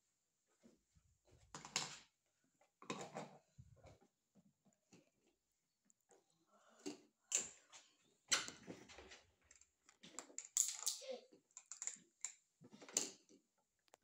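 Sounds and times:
plastic toy dishes clattering: 0:09.5 - 0:13.4.

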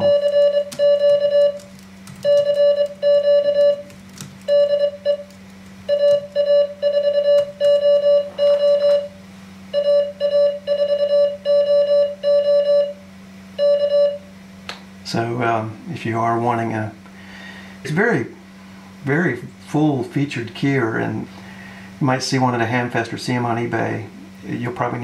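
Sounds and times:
morse code beeps: 0:00.0 - 0:03.9, 0:04.5 - 0:05.3, 0:05.9 - 0:13.0, 0:13.6 - 0:14.2.

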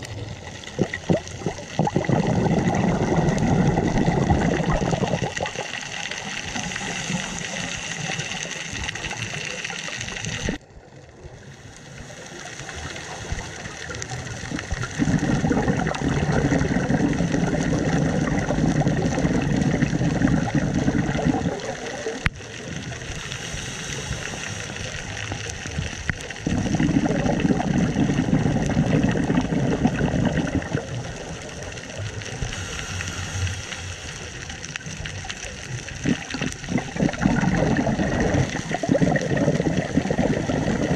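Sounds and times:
exhaled bubbles rumbling underwater: 0:00.0 - 0:40.9
steady hiss: 0:04.4 - 0:10.6, 0:11.2 - 0:15.0, 0:21.6 - 0:26.5, 0:30.8 - 0:37.1.

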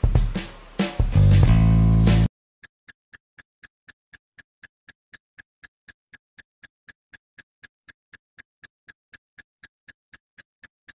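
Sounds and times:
clock ticking: 0:03.1 - 0:10.9.

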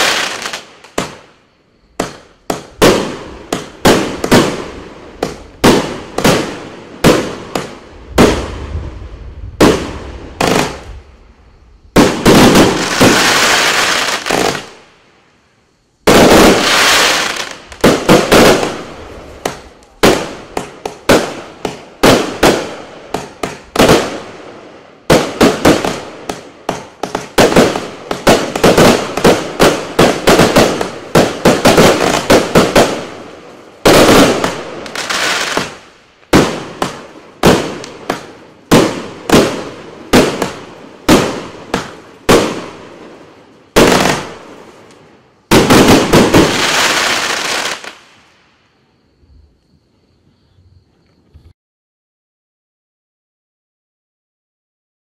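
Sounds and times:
firework cake shots and bursts: 0:25.0 - 0:42.8.

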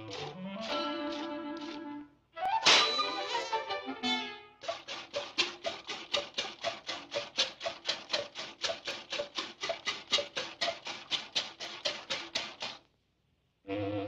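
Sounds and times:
milk squirting into metal pail: 0:00.0 - 0:01.8, 0:04.6 - 0:12.9.

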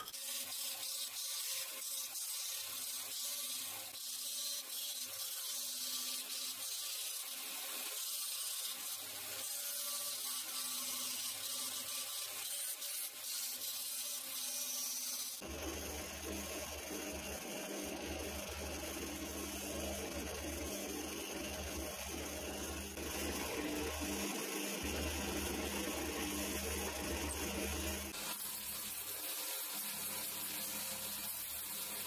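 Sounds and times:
belt sander grinding wood: 0:00.0 - 0:32.0
sander motor hum: 0:15.4 - 0:31.2.

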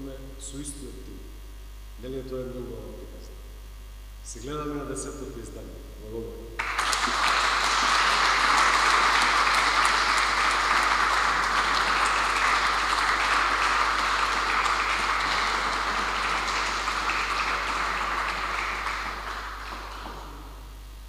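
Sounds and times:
audience applauding: 0:06.6 - 0:20.8.

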